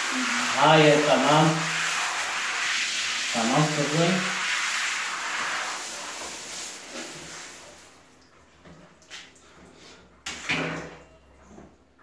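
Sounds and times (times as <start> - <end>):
shower spraying water: 0.0 - 8.2.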